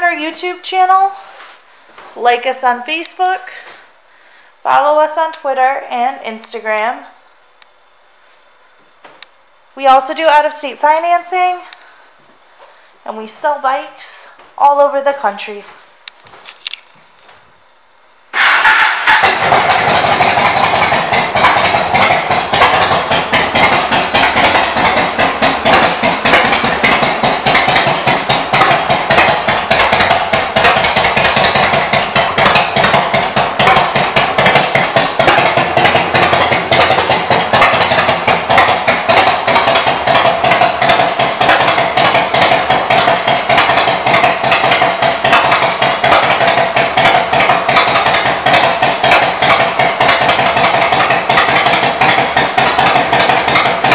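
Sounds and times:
motorcycle engine idling: 0:18.3 - 0:53.9.

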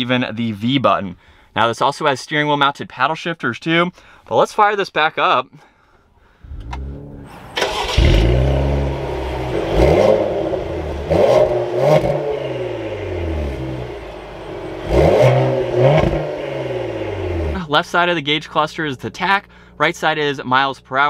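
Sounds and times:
car engine idling: 0:06.4 - 0:17.7
car engine starting and revving: 0:06.4 - 0:17.7.

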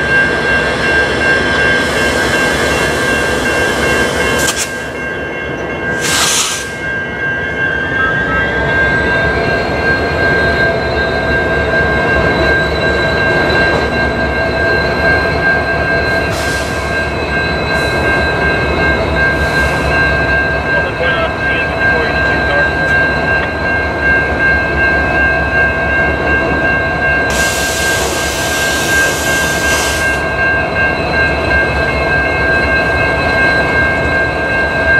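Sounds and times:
diesel locomotive engines with whine: 0:00.0 - 0:34.9.

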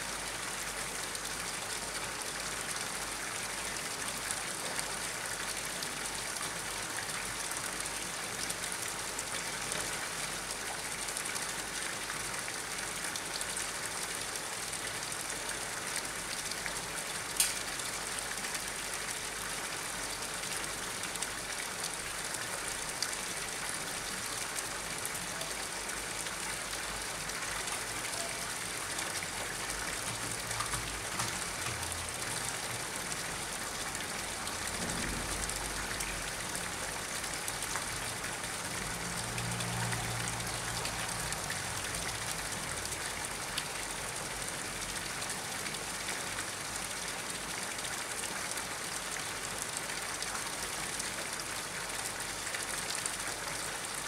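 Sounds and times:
water splashing onto pond: 0:00.1 - 0:54.0
sharp click: 0:17.4 - 0:17.6.

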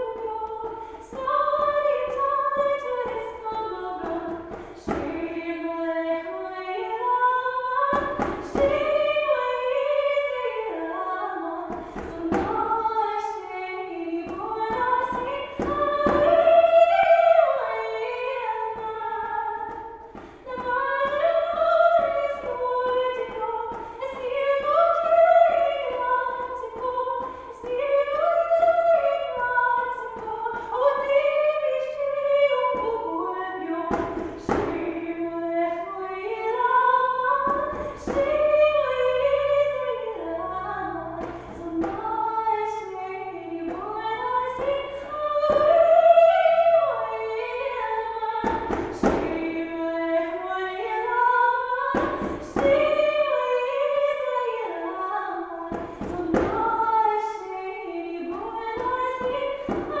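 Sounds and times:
woman singing: 0:00.0 - 1:00.0.

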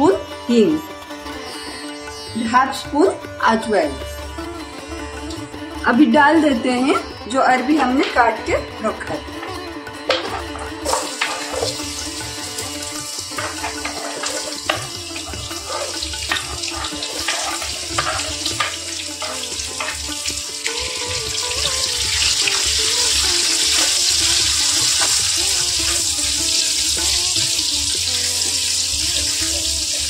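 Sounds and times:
background music: 0:00.0 - 0:30.0
food sizzling in hot oil: 0:09.4 - 0:30.0
spatula stirring and scraping: 0:10.2 - 0:20.3.

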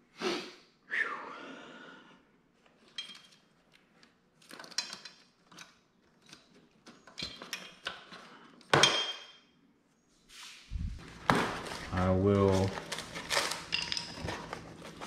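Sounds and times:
small metal parts clinking: 0:02.8 - 0:03.7, 0:04.4 - 0:08.0, 0:12.8 - 0:15.0.

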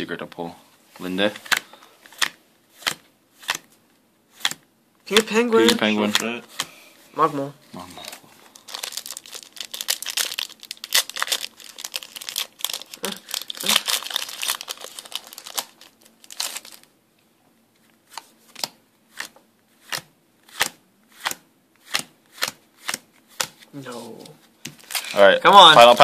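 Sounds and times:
foil wrapper crinkling and tearing: 0:08.0 - 0:16.9.

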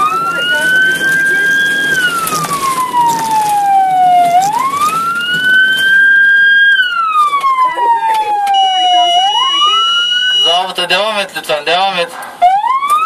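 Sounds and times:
ambulance siren wailing: 0:00.0 - 0:13.0.

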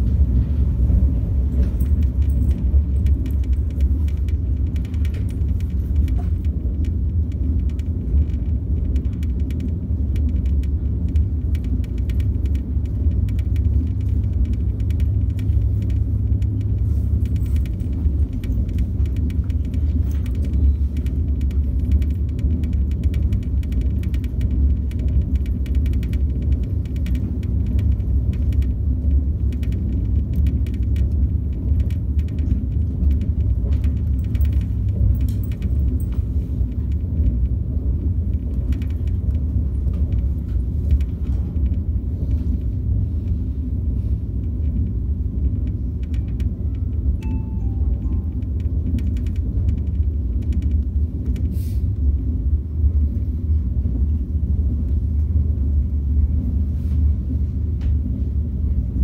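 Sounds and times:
train rumble inside cabin: 0:00.0 - 0:59.0
faint ticks and rattles: 0:00.1 - 0:59.0.

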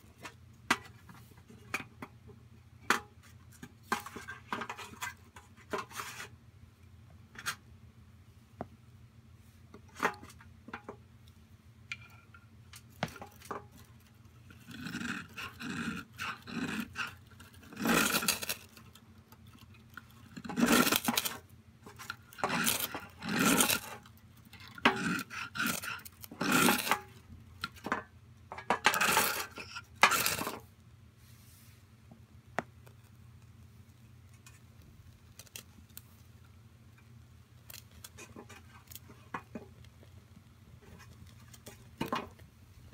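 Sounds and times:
ferro rod scraping: 0:13.0 - 0:19.7, 0:20.4 - 0:27.2, 0:28.6 - 0:30.6.

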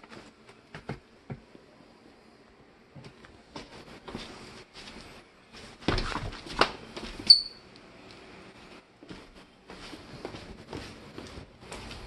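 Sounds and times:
footsteps on hardwood floor: 0:03.0 - 0:07.3, 0:08.7 - 0:12.0
high-pitched squeak: 0:07.3 - 0:07.6.

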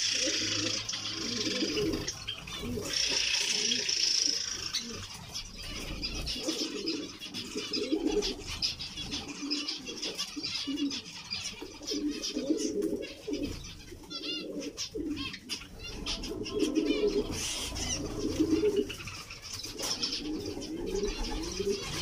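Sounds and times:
low cooing call: 0:00.0 - 0:05.0, 0:05.7 - 0:08.5
finches chirping: 0:00.0 - 0:22.0.

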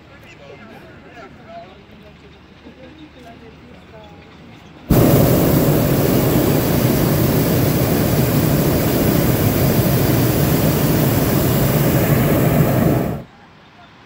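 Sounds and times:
propane burner roaring: 0:04.9 - 0:13.3.

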